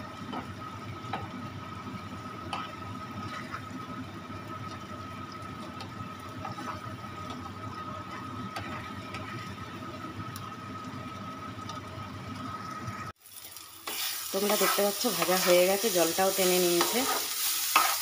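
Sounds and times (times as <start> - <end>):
paste sizzling in a pan: 0.0 - 9.6, 13.2 - 18.0
spatula scraping a pan: 2.5 - 3.6, 6.4 - 6.9, 13.8 - 18.0.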